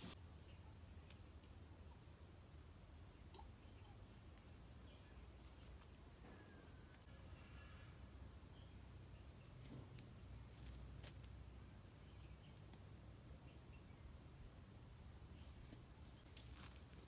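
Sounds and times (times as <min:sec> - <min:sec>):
insect chirring: 0:00.0 - 0:16.8.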